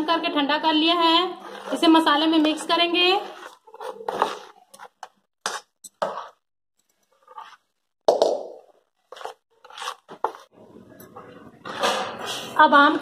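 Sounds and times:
spoon scraping in plastic tub: 0.9 - 7.7, 9.1 - 10.5.

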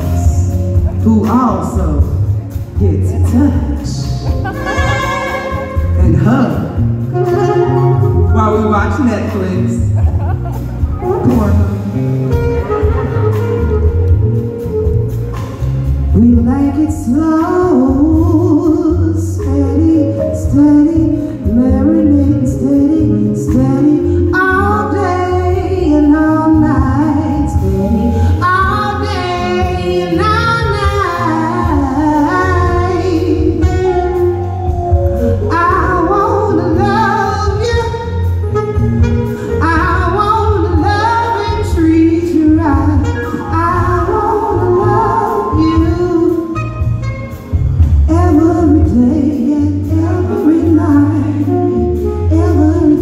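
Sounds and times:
bass line: 0.0 - 53.0
saxophone: 3.4 - 53.0
woman singing into a microphone: 16.1 - 34.6, 35.5 - 38.3, 39.5 - 46.6, 48.0 - 53.0.

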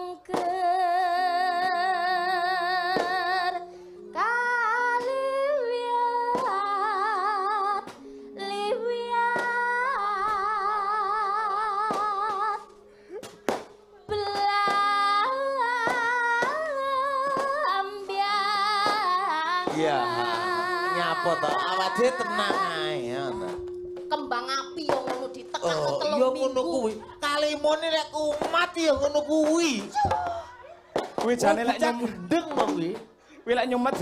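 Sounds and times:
woman singing with vibrato: 0.0 - 12.8, 14.0 - 28.3
low accompaniment: 13.6 - 33.0.

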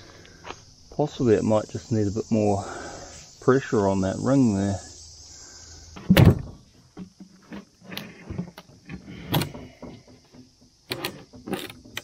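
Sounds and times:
crickets chirping: 0.0 - 12.0
metal clunks and clicks: 6.0 - 12.0.

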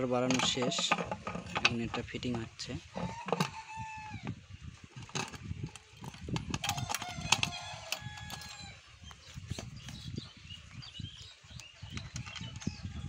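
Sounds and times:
metallic clicks and knocks: 0.0 - 3.6, 5.0 - 8.7.

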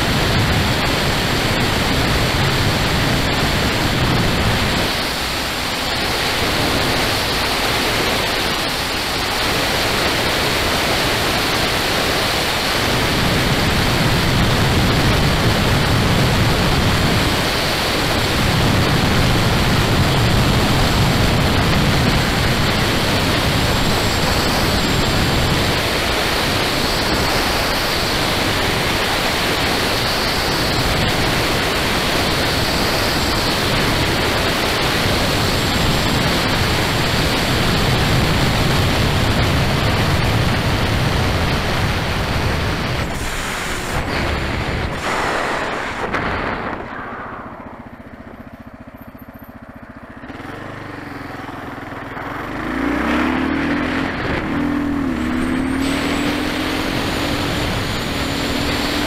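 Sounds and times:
wind rushing over microphone: 0.0 - 48.9, 51.8 - 59.0
deep rumbling: 39.4 - 49.2.

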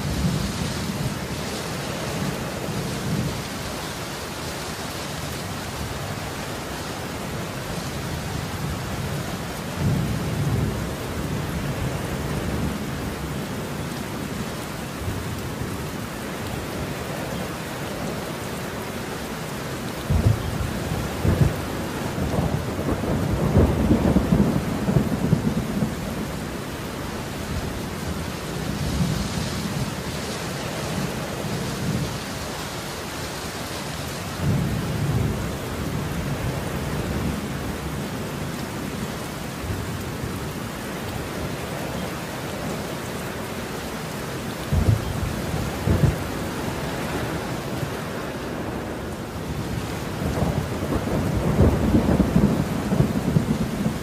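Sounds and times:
steady rain: 0.0 - 54.0
thunder rumbling: 20.0 - 26.8, 44.6 - 54.0.

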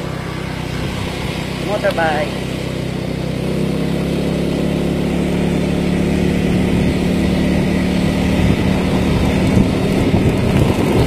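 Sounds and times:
motor scooter engine cruising: 0.0 - 11.0.

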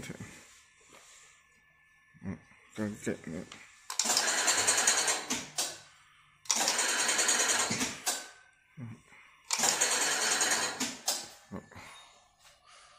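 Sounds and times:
filling machine running: 3.9 - 5.4, 6.4 - 8.2, 9.5 - 10.9.

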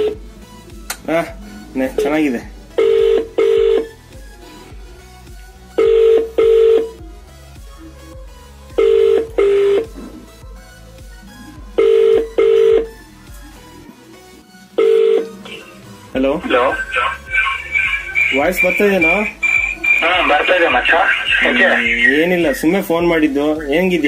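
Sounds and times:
phone ringback tone: 2.8 - 4.0, 5.8 - 7.0, 8.8 - 9.9, 11.8 - 13.0, 14.8 - 15.7, 16.5 - 22.3.

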